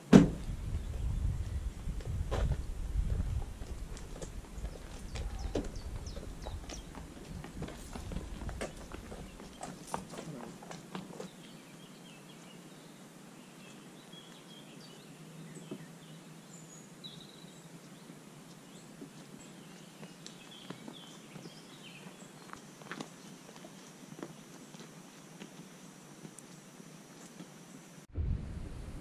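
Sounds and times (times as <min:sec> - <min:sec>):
footsteps on gravel: 0:02.0 - 0:11.6
birds chirping and whistling: 0:04.6 - 0:07.0.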